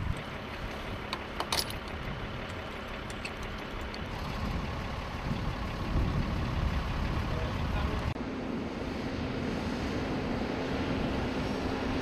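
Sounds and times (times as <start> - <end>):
engine running: 0.0 - 12.0
light metallic clinks: 1.1 - 4.0.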